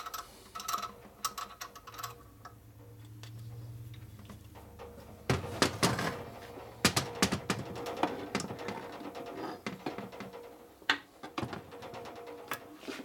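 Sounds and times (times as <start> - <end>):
steel bar knocking on metal: 5.3 - 8.9
metal parts clunking on workbench: 5.3 - 10.4.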